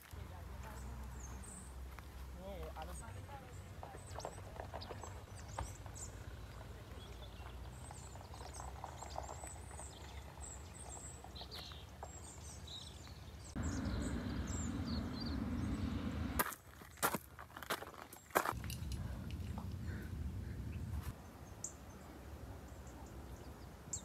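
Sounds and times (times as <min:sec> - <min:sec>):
small birds chirping: 0:00.1 - 0:17.1
low outdoor rumble: 0:13.4 - 0:16.4, 0:18.6 - 0:21.2
steady rushing noise: 0:13.6 - 0:16.4.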